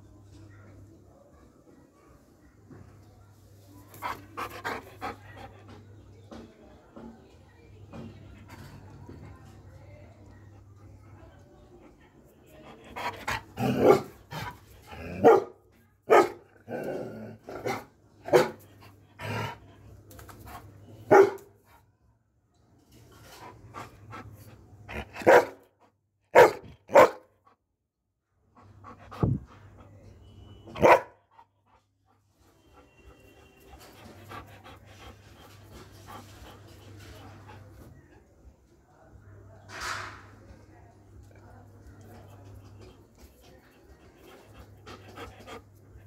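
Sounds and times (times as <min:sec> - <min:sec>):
dog panting: 0:04.0 - 0:05.8, 0:32.5 - 0:38.0, 0:44.0 - 0:46.0
dog barking: 0:15.2 - 0:16.4, 0:17.6 - 0:18.6, 0:21.1 - 0:21.5, 0:25.2 - 0:25.6, 0:26.3 - 0:27.3, 0:30.7 - 0:31.2.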